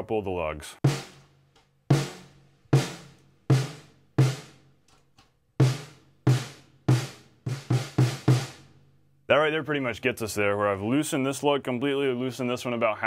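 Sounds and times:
low detuned snare drum hits: 0.8s - 1.2s, 1.9s - 4.6s, 5.6s - 8.6s.

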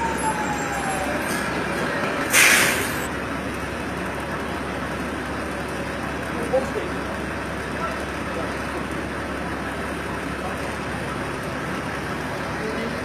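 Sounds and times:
air brake hiss: 2.3s - 3.1s.

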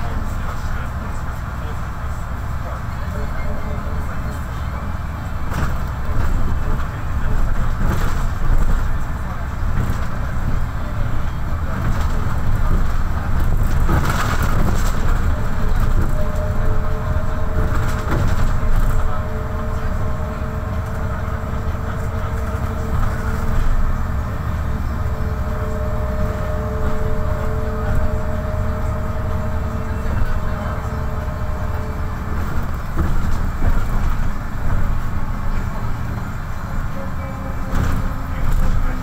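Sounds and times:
bus engine and road rumble: 0.0s - 39.0s
two-note whine: 14.7s - 39.0s.

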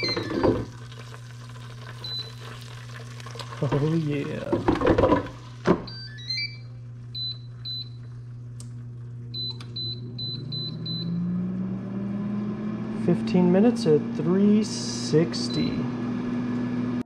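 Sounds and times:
air fryer fan humming: 0.0s - 17.0s
air fryer basket knocking shut: 4.5s - 5.9s.

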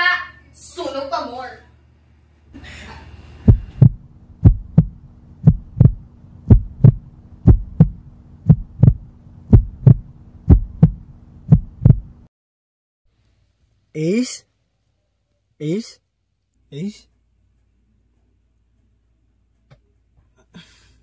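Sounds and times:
steady low hum: 1.6s - 12.3s
heartbeat thumps: 3.4s - 12.3s.

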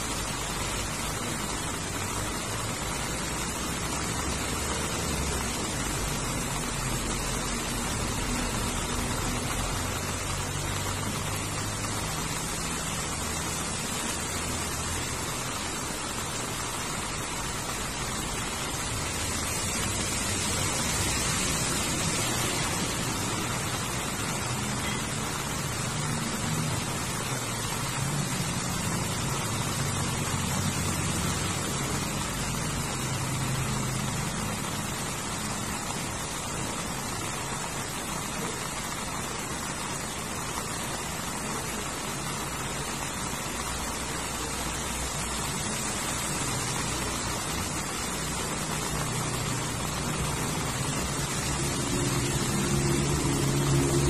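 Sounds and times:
heavy rain on grass: 0.0s - 54.0s.

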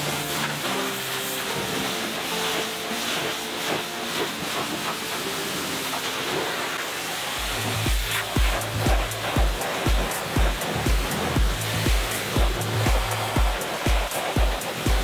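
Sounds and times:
pressure washer spraying water: 0.0s - 15.0s
background music with bass beat: 7.4s - 15.0s.

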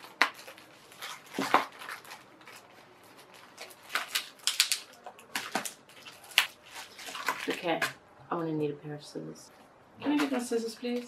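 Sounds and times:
plastic wrapping crinkling: 0.0s - 7.9s.

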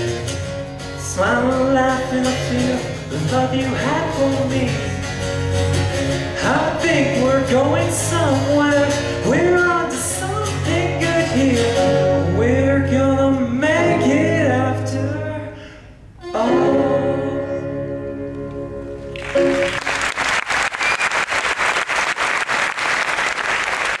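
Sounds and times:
live band playing: 0.0s - 15.2s, 16.2s - 21.2s
men singing: 1.1s - 5.1s, 6.4s - 15.6s, 16.2s - 17.8s
audience applause: 19.2s - 24.0s.

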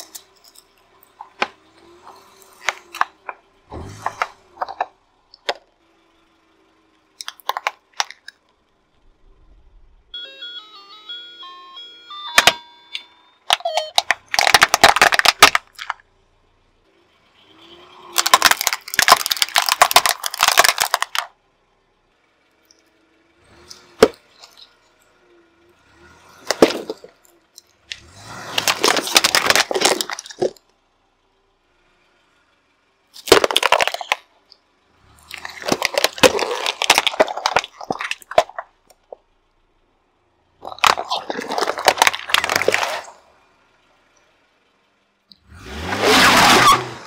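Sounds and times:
plastic toys crunching under tyre: 0.0s - 5.6s, 7.2s - 8.4s, 13.5s - 16.0s, 18.1s - 21.4s, 23.6s - 24.7s, 26.4s - 30.7s, 33.2s - 34.3s, 35.1s - 39.2s, 40.6s - 43.2s
sharp plastic crack: 7.2s - 8.4s, 13.5s - 16.0s, 18.2s - 21.3s, 26.4s - 27.2s, 27.9s - 30.6s, 33.2s - 34.3s, 35.3s - 39.2s, 40.6s - 43.1s.

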